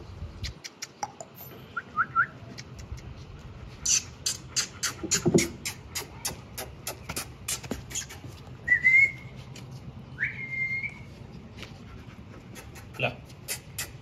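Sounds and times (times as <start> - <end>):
mouth clicks: 0.4 - 1.3, 3.8 - 8.3, 12.6 - 14.0.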